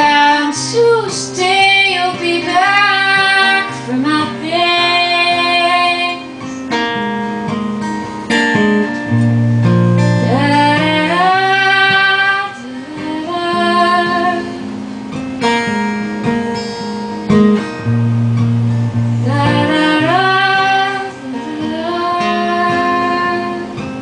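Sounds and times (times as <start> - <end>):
woman singing: 0.0 - 6.6, 10.0 - 14.7, 19.1 - 24.0
acoustic guitar strumming: 0.0 - 24.0.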